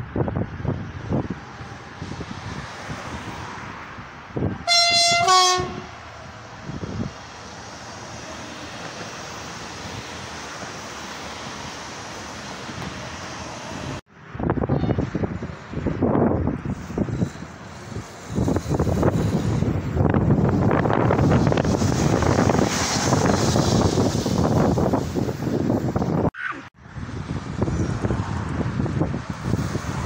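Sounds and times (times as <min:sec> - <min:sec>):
train wheels rushing on rail: 0:04.3 - 0:26.3, 0:27.2 - 0:30.0
two-tone train horn: 0:04.6 - 0:06.0.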